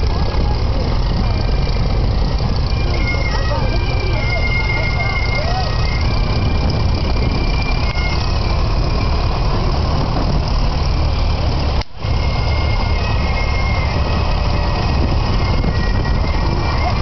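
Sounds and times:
tractor engines driving past: 0:00.0 - 0:17.0.

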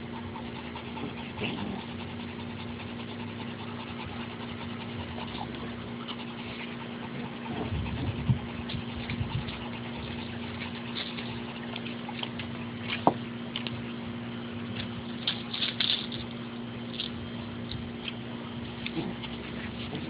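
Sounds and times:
steady low hum: 0:00.0 - 0:20.0
puppies scuffling: 0:05.2 - 0:13.8, 0:14.6 - 0:17.2.

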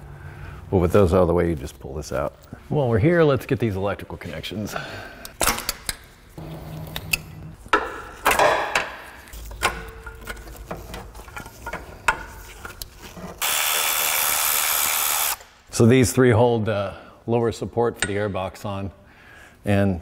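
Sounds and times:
handheld power tool running: 0:13.4 - 0:15.5.

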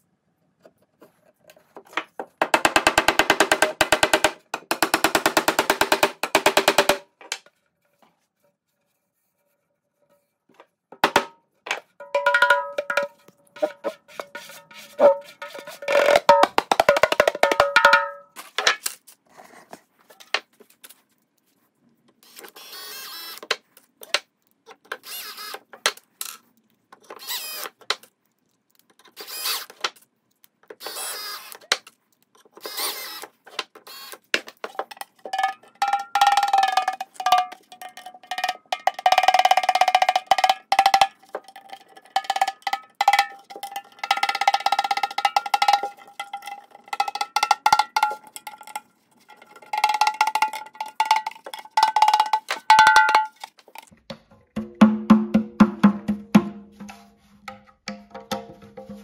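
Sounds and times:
cordless drill boring into wood: 0:22.3 - 0:23.5, 0:25.0 - 0:25.6, 0:27.2 - 0:27.7, 0:29.2 - 0:29.8, 0:30.8 - 0:31.6, 0:32.6 - 0:34.2
frame drum struck by hand: 0:54.2 - 0:59.0.

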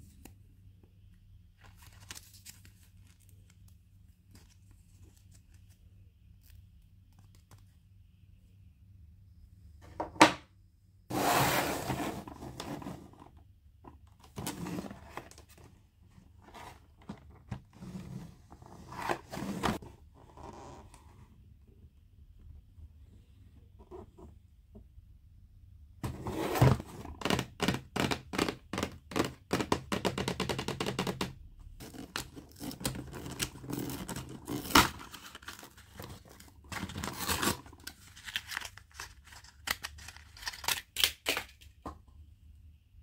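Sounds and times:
wrapping rustling and crinkling: 0:01.6 - 0:07.7, 0:31.8 - 0:41.4
packaging tearing: 0:32.5 - 0:41.6
packaging click: 0:38.2 - 0:41.6.

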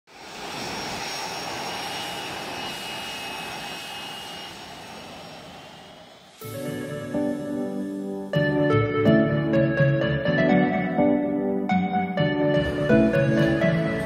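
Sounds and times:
airliner cabin engine roar: 0:00.1 - 0:09.8
faint high steady tones: 0:00.7 - 0:09.4
soft music: 0:06.4 - 0:14.0.

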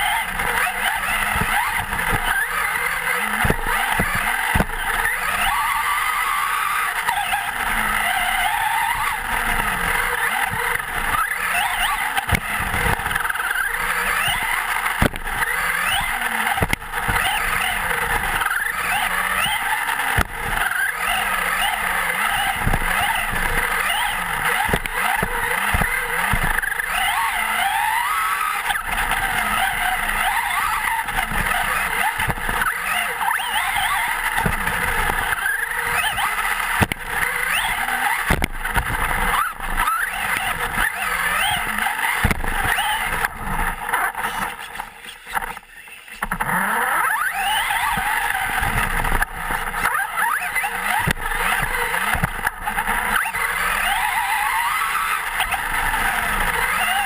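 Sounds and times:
tyre noise on dirt: 0:00.0 - 0:45.5, 0:46.2 - 0:57.0
rc truck motor whining: 0:00.0 - 0:57.0
knocks from bumps and landings: 0:10.4 - 0:43.8.

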